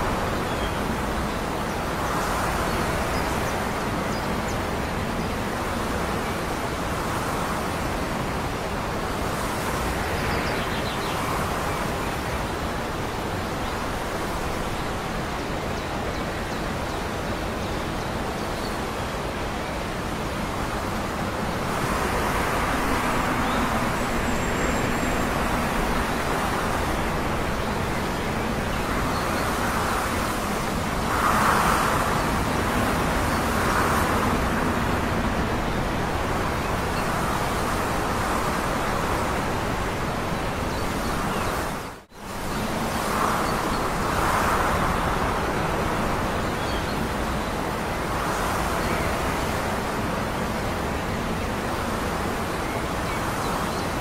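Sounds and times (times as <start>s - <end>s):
wind: 0.0s - 54.0s
distant town traffic: 20.2s - 40.6s.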